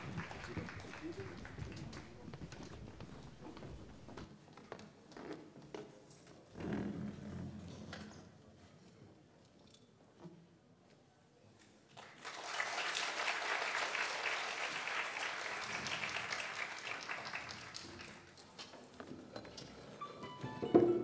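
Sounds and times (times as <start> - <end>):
audience applauding: 0.0 - 4.2, 12.0 - 18.5.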